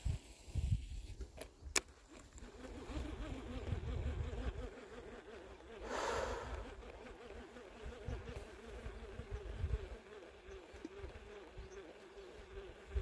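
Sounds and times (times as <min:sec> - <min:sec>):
rustle: 0:00.0 - 0:13.0
wind on microphone: 0:02.8 - 0:04.7, 0:07.8 - 0:10.0.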